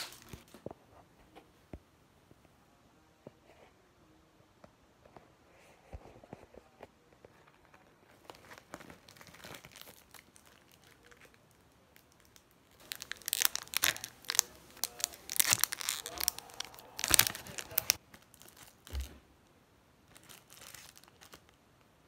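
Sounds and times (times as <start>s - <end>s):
plastic bag crinkling: 8.1s - 19.2s, 20.1s - 21.6s.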